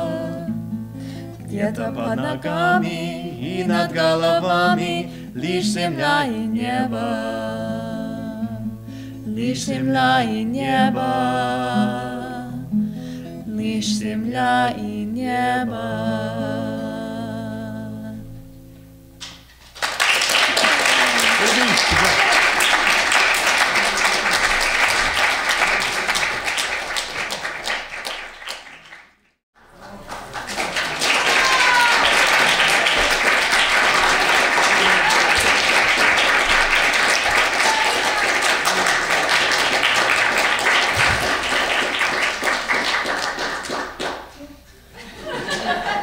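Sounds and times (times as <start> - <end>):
audience applauding: 19.6 - 44.4.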